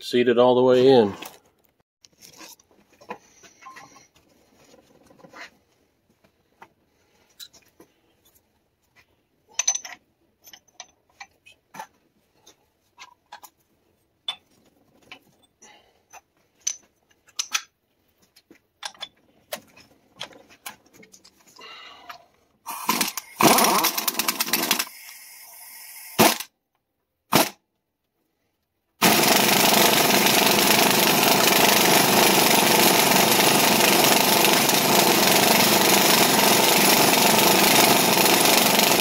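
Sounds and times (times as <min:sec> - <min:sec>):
metal tools clinking: 0:09.5 - 0:11.6.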